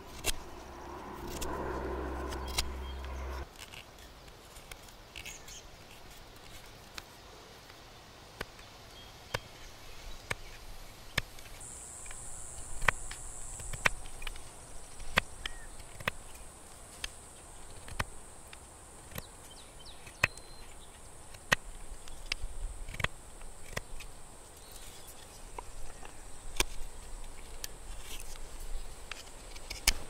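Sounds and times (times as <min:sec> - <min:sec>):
low hum: 0:00.0 - 0:03.5
steady high buzz: 0:00.0 - 0:03.5, 0:11.6 - 0:15.4.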